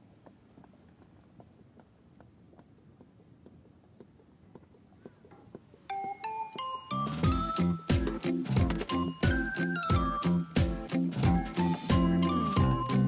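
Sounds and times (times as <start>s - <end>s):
background music with chime notes: 5.9s - 13.0s.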